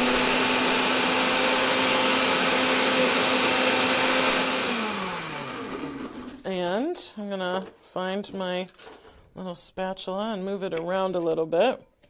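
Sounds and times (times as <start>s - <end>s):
blender motor winding down: 0.0s - 6.4s
blender running: 0.0s - 6.4s.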